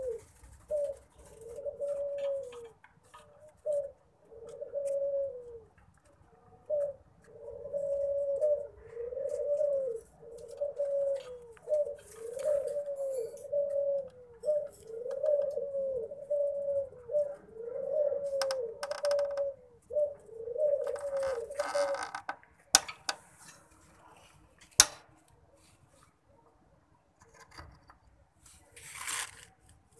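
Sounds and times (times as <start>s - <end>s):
dove cooing: 0.0s - 22.4s.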